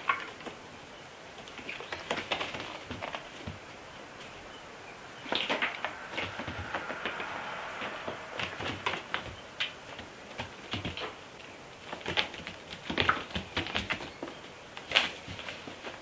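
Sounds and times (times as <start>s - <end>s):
cat paws tapping on foam mats: 8.4s - 11.2s, 11.8s - 16.0s.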